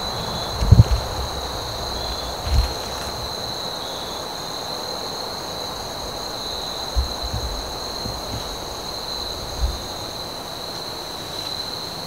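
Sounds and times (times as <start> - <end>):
low bump: 0.0 - 3.5, 6.8 - 10.0
crickets chorus: 0.0 - 12.0.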